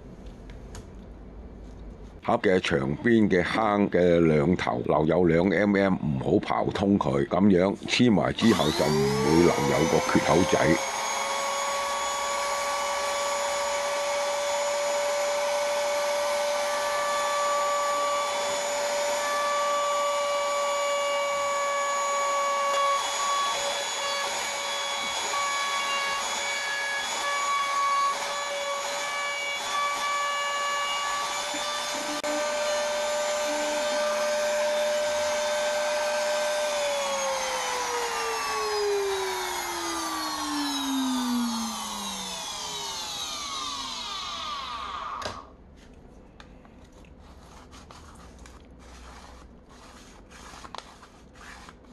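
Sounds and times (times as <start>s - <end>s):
electric router whining: 8.4s - 45.5s.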